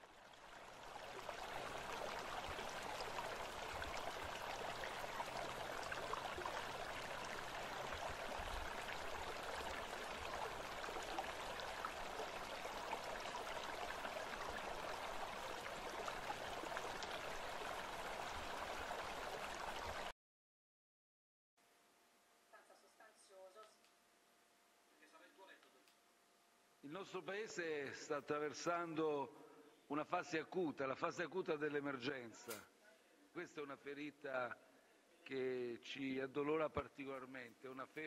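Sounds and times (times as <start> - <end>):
trickling water: 0.0 - 20.1.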